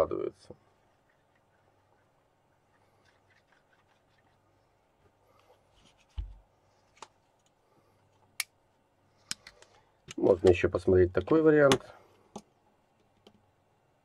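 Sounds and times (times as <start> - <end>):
faint rubbing: 0.5 - 7.9.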